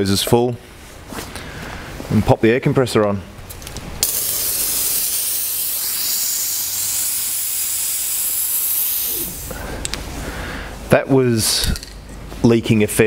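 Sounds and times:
compressed air hissing through hose: 0:04.0 - 0:10.0.

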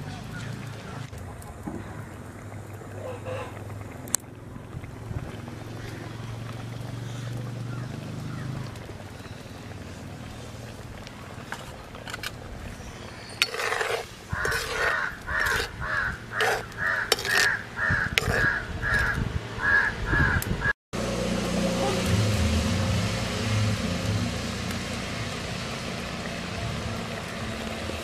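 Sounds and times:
crow cawing: 0:14.3 - 0:20.4.

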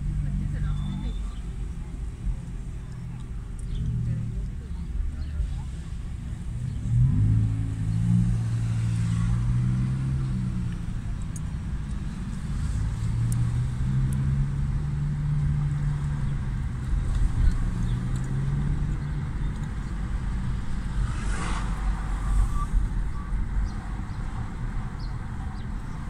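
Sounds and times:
car engine hum and road rumble: 0:00.0 - 0:26.0
brief rushing noise: 0:20.9 - 0:23.4.

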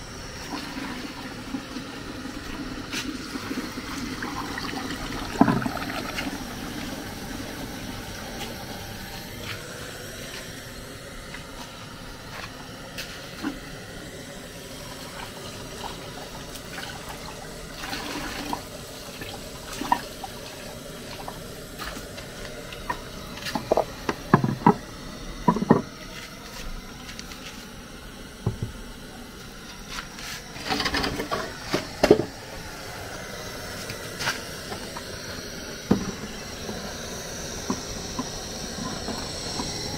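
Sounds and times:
water running from tap: 0:00.4 - 0:09.3, 0:14.6 - 0:25.9.

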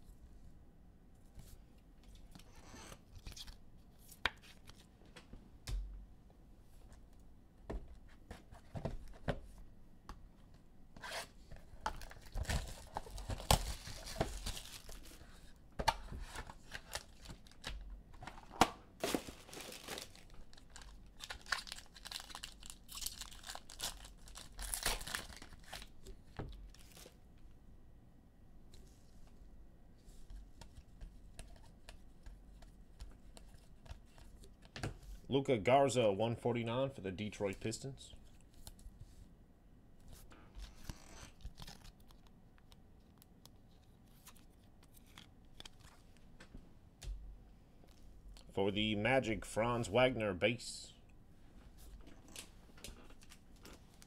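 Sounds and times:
foil pack tearing and crinkling: 0:12.0 - 0:15.2, 0:19.0 - 0:26.0
plastic shrink-wrap tearing: 0:19.0 - 0:25.9.

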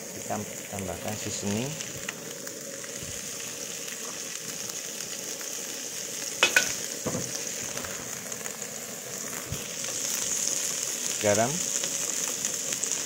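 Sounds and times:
food sizzling in a wok: 0:00.0 - 0:13.0
metal spatula clanking on wok: 0:06.4 - 0:06.8.

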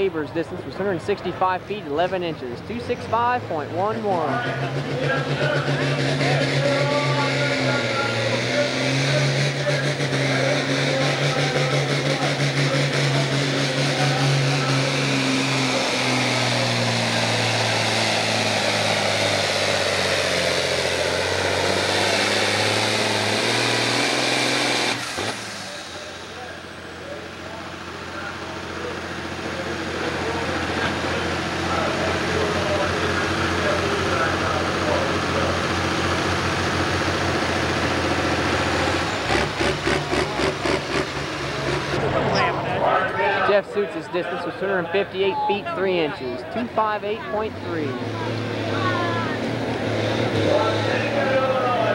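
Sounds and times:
tractor diesel engine under load: 0:00.0 - 0:51.9.

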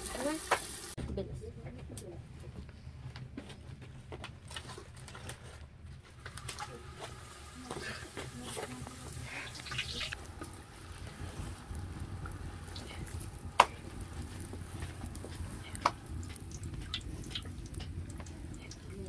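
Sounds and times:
dough sizzling in hot oil: 0:00.0 - 0:01.0, 0:06.2 - 0:19.0.

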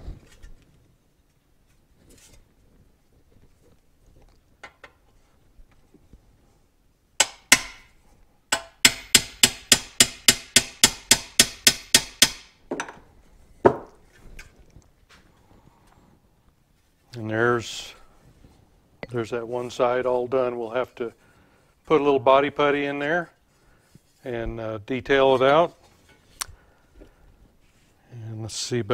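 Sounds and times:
hammer striking metal: 0:07.2 - 0:13.0.

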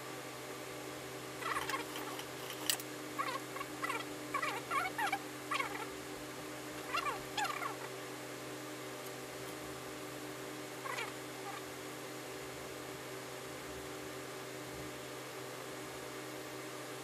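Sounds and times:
steady hum: 0:00.0 - 0:17.0
high animal calls: 0:01.4 - 0:02.0, 0:03.2 - 0:05.9, 0:06.8 - 0:08.0, 0:10.8 - 0:11.6.

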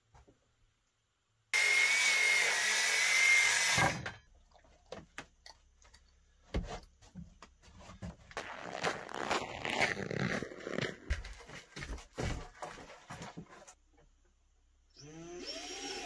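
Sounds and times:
circular saw cutting wood: 0:01.6 - 0:04.0.

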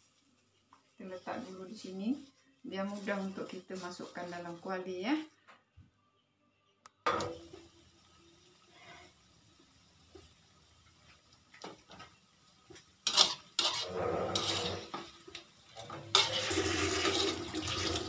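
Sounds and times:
fritters sizzling in oil: 0:00.0 - 0:04.8, 0:07.1 - 0:18.0
metal spatula scraping a wok: 0:13.0 - 0:17.4.

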